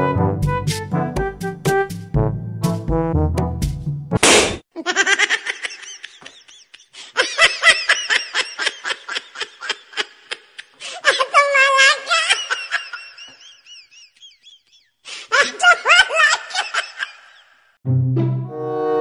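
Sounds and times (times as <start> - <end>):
people laughing: 4.8 - 17.5.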